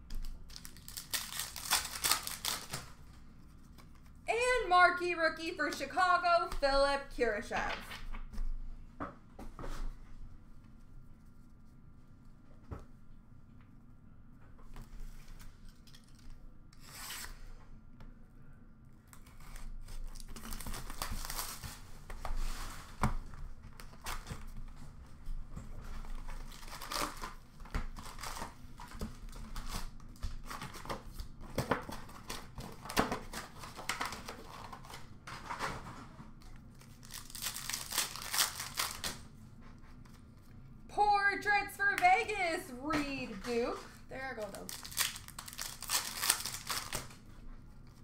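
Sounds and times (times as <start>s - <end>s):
foil and plastic ripping: 0.1s - 3.0s, 19.2s - 23.0s, 25.9s - 36.0s, 36.8s - 39.2s, 44.4s - 47.3s.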